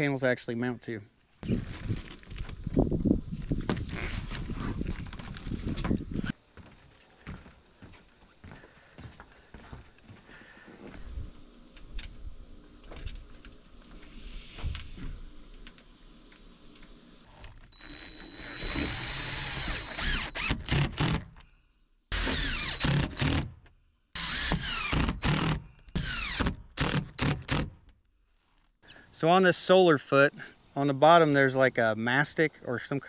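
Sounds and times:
power drill driving screws: 17.8s - 21.3s, 22.1s - 23.5s, 24.2s - 27.7s.

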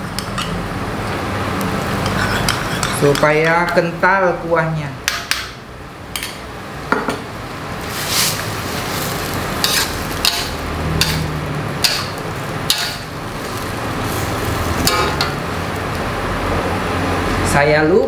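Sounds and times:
steady sizzle: 0.8s - 3.2s, 5.6s - 18.0s
metal spatula scraping a wok: 2.0s - 3.2s, 7.8s - 15.4s.

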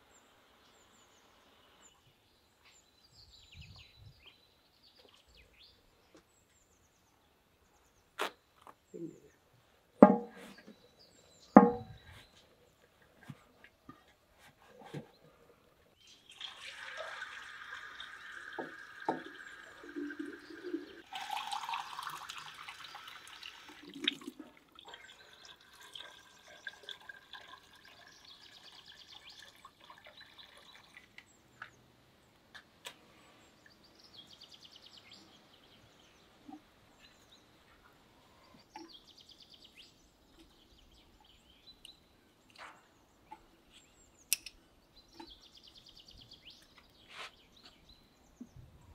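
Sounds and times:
wooden kindling knocks: 10.0s - 10.4s, 11.6s - 12.0s
water pouring from metal jug: 16.1s - 31.2s
birds chirping: 17.6s - 21.0s, 33.0s - 48.9s.

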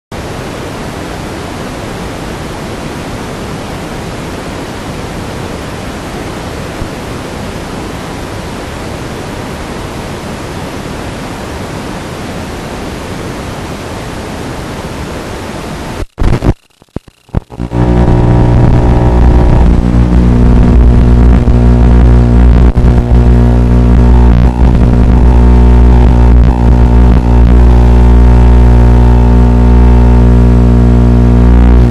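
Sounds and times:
static hiss: 0.1s - 31.9s.

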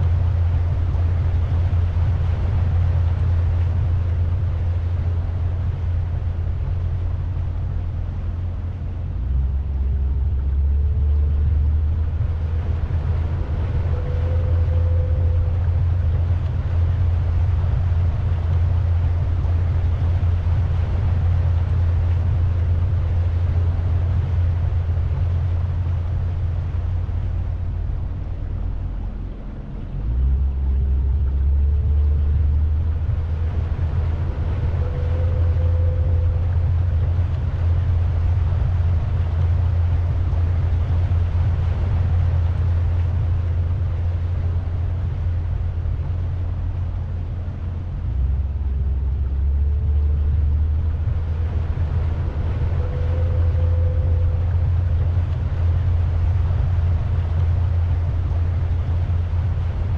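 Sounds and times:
boat motor rumbling: 0.0s - 59.9s
faint higher tone: 6.2s - 41.2s, 42.0s - 56.6s.

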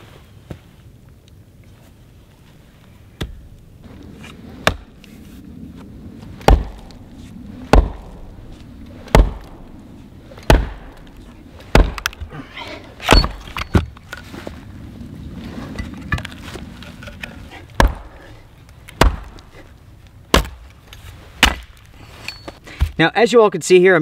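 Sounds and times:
hatchet chopping firewood: 4.6s - 4.9s, 6.4s - 7.0s, 7.6s - 8.2s, 9.1s - 9.5s, 10.4s - 12.3s, 13.0s - 13.9s, 17.7s - 19.5s, 20.3s - 20.8s, 21.4s - 23.0s.

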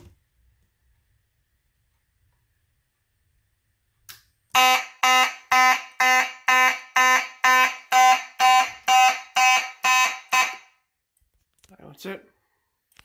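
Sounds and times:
fire alarm horn pulsing: 4.5s - 10.9s.

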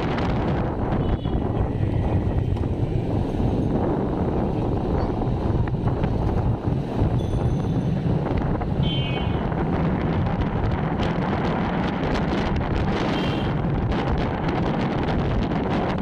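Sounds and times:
street traffic rumble: 0.0s - 16.0s
wind buffeting microphone: 0.0s - 16.0s.

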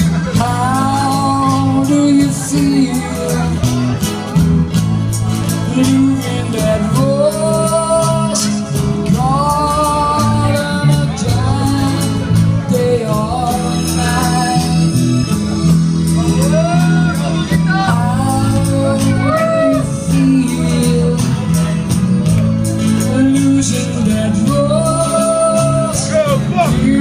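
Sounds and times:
bass guitar: 0.0s - 27.0s
electric guitar: 0.0s - 27.0s
woman singing into microphone: 0.3s - 3.6s, 5.7s - 15.4s, 17.9s - 21.8s, 22.9s - 26.1s, 26.7s - 27.0s.

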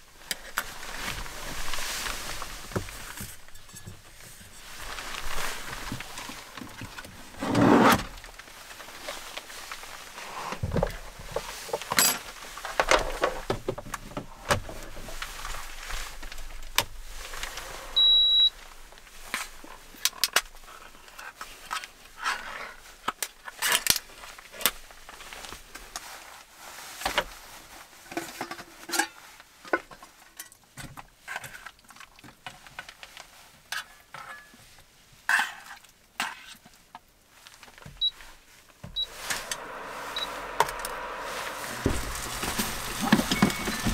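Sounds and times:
short high beep: 40.1s - 40.9s, 41.9s - 43.9s.

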